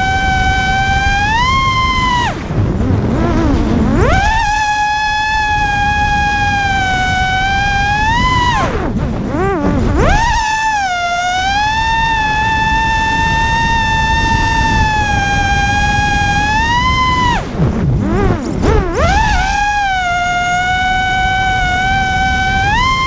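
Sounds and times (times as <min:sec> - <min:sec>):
wind rushing: 0:00.0 - 0:21.6
drone motors whining: 0:00.0 - 0:23.0.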